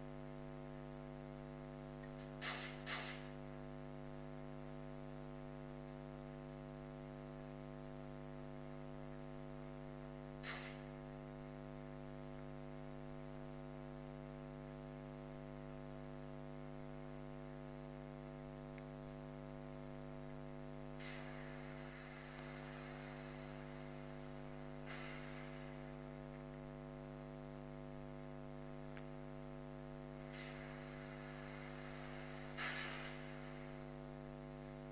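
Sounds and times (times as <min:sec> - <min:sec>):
electrical mains hum: 0:00.0 - 0:34.9
click: 0:18.7 - 0:18.9, 0:28.9 - 0:29.1.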